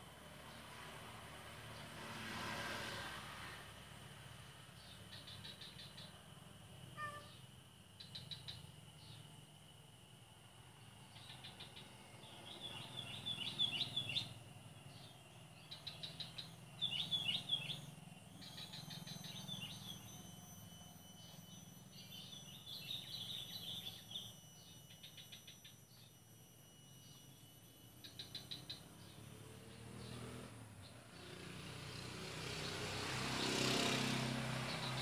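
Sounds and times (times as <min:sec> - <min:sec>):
bird chirping and trilling: 0:07.0 - 0:09.3, 0:11.1 - 0:31.0.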